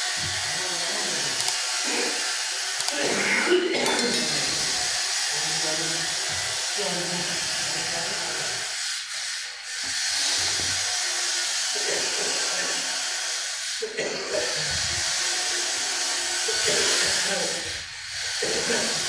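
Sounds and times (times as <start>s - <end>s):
woodworking machinery hissing: 0.0s - 19.0s.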